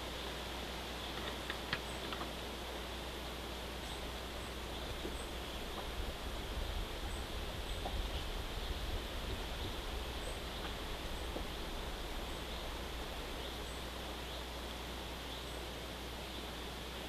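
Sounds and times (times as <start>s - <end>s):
even hiss: 0.0s - 17.0s
steady low rumble: 3.9s - 14.3s.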